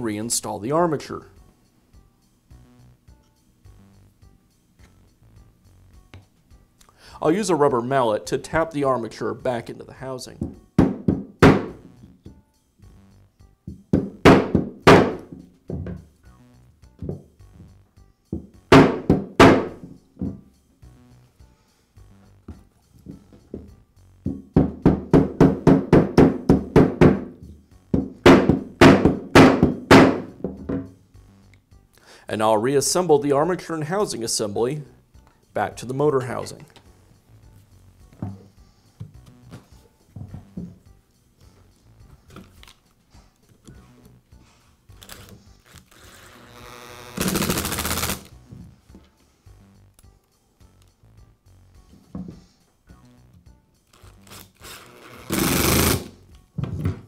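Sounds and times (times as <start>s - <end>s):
cordless screwdriver motor whirring: 45.8s - 48.3s
screwdriver clutch clicking rapidly: 47.2s - 48.3s.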